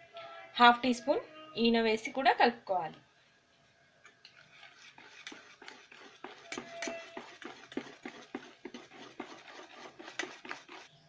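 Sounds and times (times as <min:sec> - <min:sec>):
whisk beating batter in steel bowl: 0:04.2 - 0:11.0.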